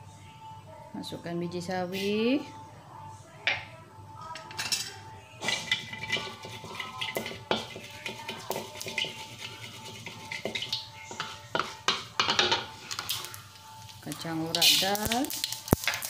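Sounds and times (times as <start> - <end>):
spatula scraping wok: 5.4 - 13.4, 14.4 - 16.0.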